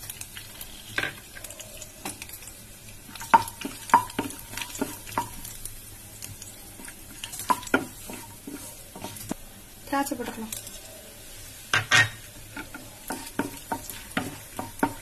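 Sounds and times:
nuts sizzling: 0.0s - 15.0s
spatula tapping and scraping pan: 3.1s - 5.5s, 6.8s - 9.4s, 11.7s - 15.0s.

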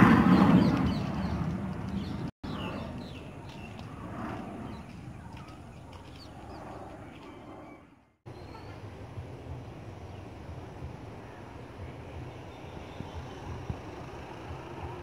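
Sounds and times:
jet engine passing: 0.0s - 8.2s
birds chirping: 0.0s - 14.3s.

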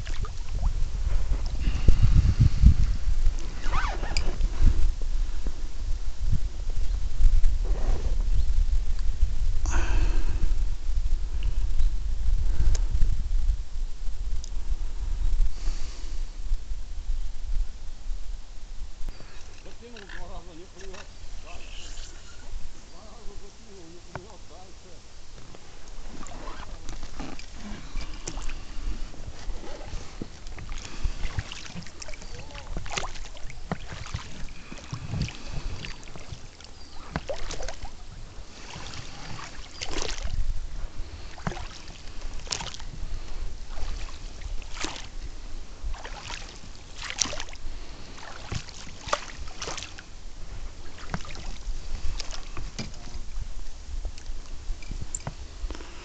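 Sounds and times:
oars splashing: 0.0s - 2.2s, 3.3s - 4.6s, 25.4s - 56.0s
low steady rumble: 0.0s - 56.0s.

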